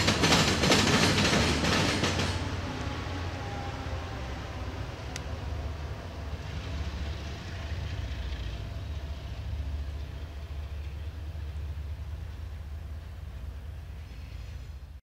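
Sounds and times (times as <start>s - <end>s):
diesel locomotive engine drone: 0.0s - 15.0s.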